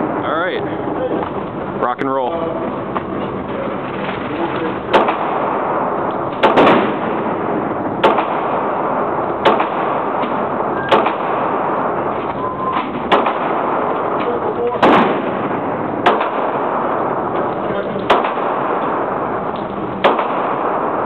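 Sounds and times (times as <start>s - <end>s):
pistol shots indoors: 4.9s - 21.0s.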